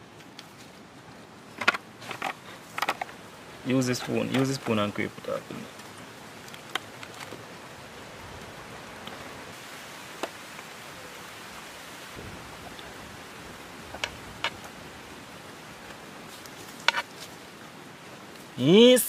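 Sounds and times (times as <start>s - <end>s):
steady hiss: 0.0s - 19.0s
light clicks of containers: 1.6s - 3.2s.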